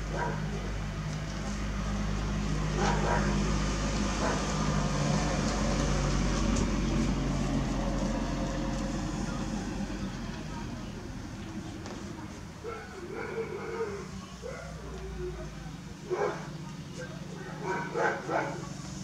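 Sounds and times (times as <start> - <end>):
car driving past: 1.9 - 11.7.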